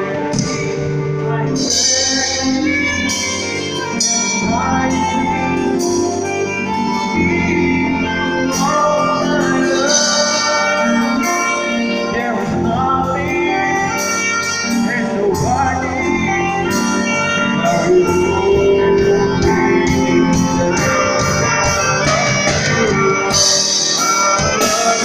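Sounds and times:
drum kit with cymbals: 0:00.0 - 0:25.0
electric keyboard: 0:00.0 - 0:25.0
man singing: 0:00.0 - 0:25.0
saxophone melody: 0:00.0 - 0:25.0.

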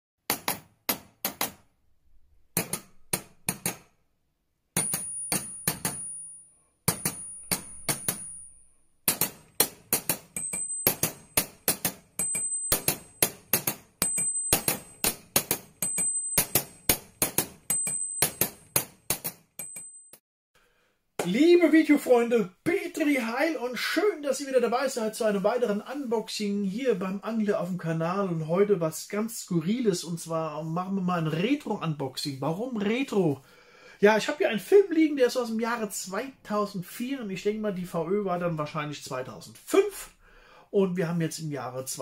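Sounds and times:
thin high ringing tone: 0:04.8 - 0:08.9, 0:10.4 - 0:11.1, 0:12.2 - 0:13.1
sharp metallic hits: 0:06.9 - 0:19.8.

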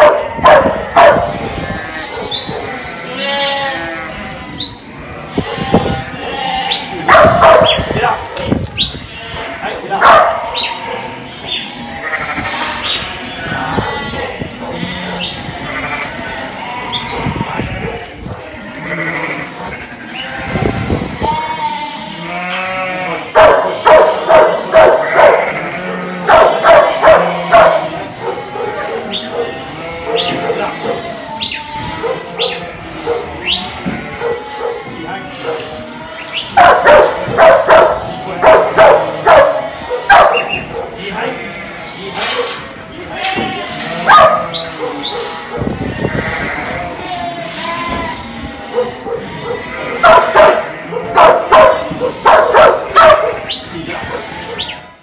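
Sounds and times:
dog barking: 0:00.0 - 0:01.4, 0:02.1 - 0:02.8, 0:07.1 - 0:08.2, 0:10.0 - 0:11.1, 0:13.8 - 0:15.3, 0:17.8 - 0:18.5, 0:23.3 - 0:25.6, 0:26.2 - 0:31.0, 0:32.0 - 0:33.4, 0:34.1 - 0:35.7, 0:36.6 - 0:41.0, 0:42.3 - 0:42.6, 0:44.0 - 0:45.8, 0:48.7 - 0:54.7
sheep bleating: 0:00.0 - 0:55.0.

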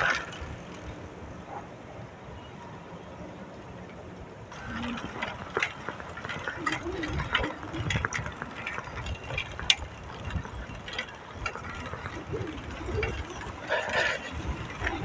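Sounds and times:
bike drivetrain clicks and rattles: 0:00.0 - 0:01.0, 0:03.8 - 0:15.0
wind rumble on microphone: 0:04.2 - 0:15.0.

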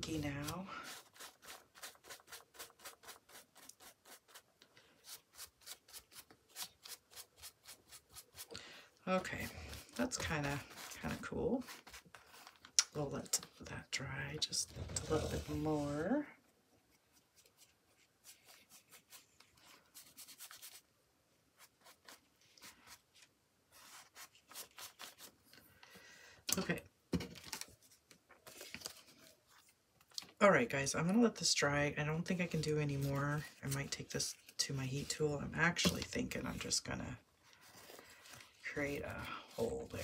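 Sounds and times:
paintbrush scrubbing on paper: 0:00.0 - 0:08.5, 0:09.1 - 0:12.6, 0:16.9 - 0:20.8, 0:21.6 - 0:25.3.

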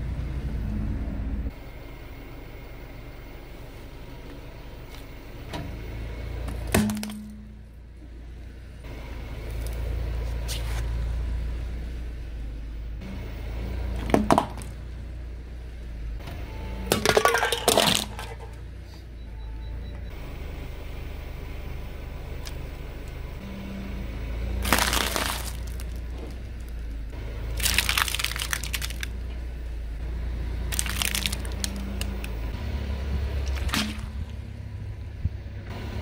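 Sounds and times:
car engine rumble: 0:00.0 - 0:36.0
plastic cracking under tyre: 0:24.6 - 0:26.4, 0:27.6 - 0:29.1, 0:30.7 - 0:32.3, 0:33.4 - 0:34.2.

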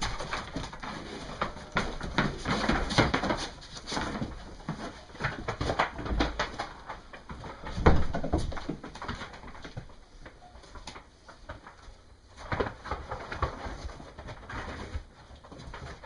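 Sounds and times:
hooves clattering on boards: 0:00.0 - 0:11.7.

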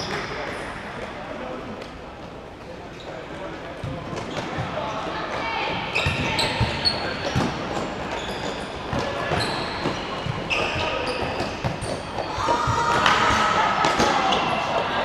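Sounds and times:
shoes squeaking on court: 0:05.8 - 0:13.2.

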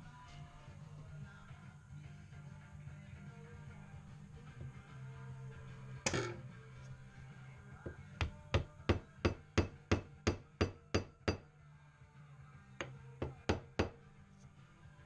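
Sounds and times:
rubber mallet knocking on wood: 0:07.9 - 0:11.4, 0:12.8 - 0:14.0.

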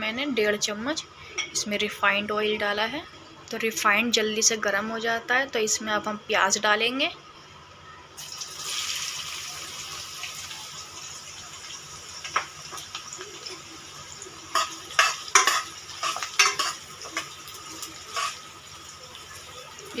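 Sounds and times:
onions sizzling in hot oil: 0:08.2 - 0:20.0
spoon scraping pan: 0:14.5 - 0:17.4, 0:18.0 - 0:18.5.

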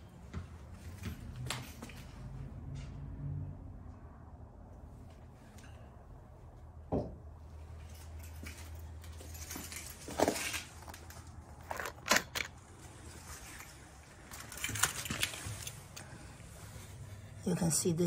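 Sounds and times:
metal parts knocking and clinking: 0:11.6 - 0:12.6.

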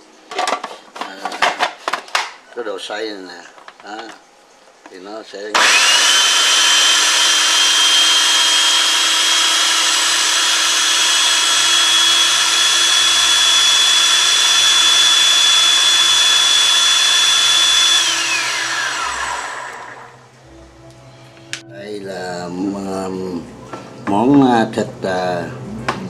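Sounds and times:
blade spinning down: 0:05.6 - 0:20.2
food processor motor whining: 0:05.6 - 0:20.2.

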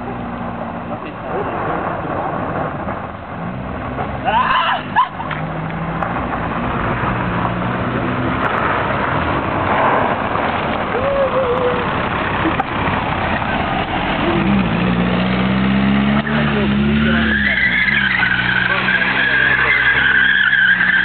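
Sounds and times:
tyres on gravel rushing noise: 0:00.2 - 0:21.0
car engine running: 0:05.2 - 0:21.0.

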